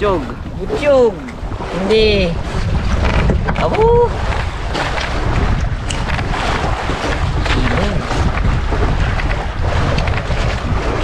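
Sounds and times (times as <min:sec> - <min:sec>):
boat rushing through sea: 0:00.0 - 0:11.0
wind buffeting microphone: 0:00.0 - 0:11.0.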